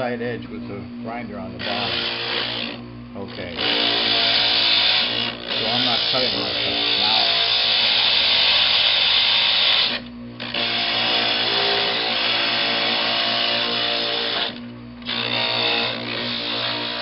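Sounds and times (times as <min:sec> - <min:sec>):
grinder motor humming: 0:00.0 - 0:17.0.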